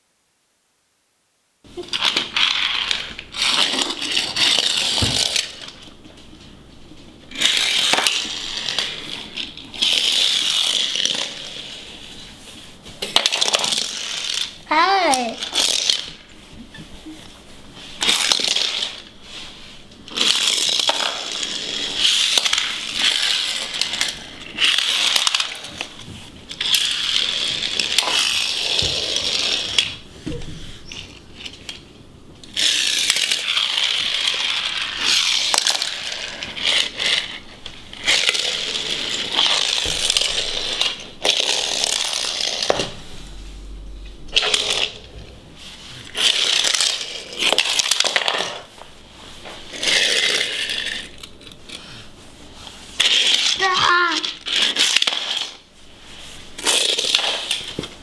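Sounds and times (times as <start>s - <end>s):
toy cars rolling on hard floor: 1.7s - 43.2s, 44.3s - 58.0s
toy cars clacking: 1.8s - 5.8s, 7.3s - 12.0s, 13.0s - 16.2s, 18.0s - 19.1s, 20.0s - 30.0s, 32.4s - 42.9s, 44.3s - 45.1s, 46.0s - 48.8s, 49.7s - 51.9s, 53.0s - 55.6s, 56.6s - 57.9s.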